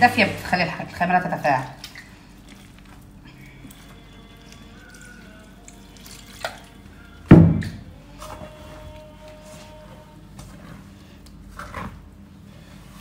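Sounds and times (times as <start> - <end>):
water trickling onto flour: 1.8 - 7.3
loud thump: 7.3 - 7.8.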